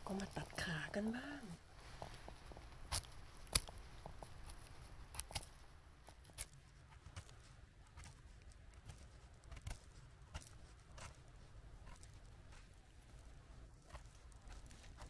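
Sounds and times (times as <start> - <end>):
knife trimming mushroom clicks: 2.0 - 11.2.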